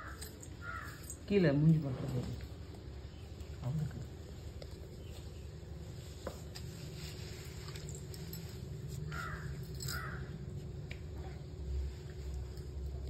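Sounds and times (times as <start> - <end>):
crow cawing: 0.0 - 1.1, 9.1 - 10.3
low background hum: 0.0 - 13.0.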